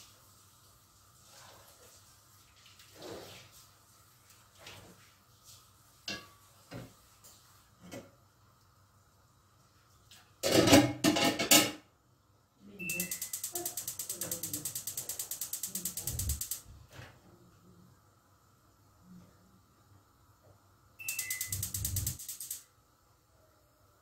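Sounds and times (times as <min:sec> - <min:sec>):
gas igniter clicking rapidly: 0:12.9 - 0:16.6, 0:21.1 - 0:22.6.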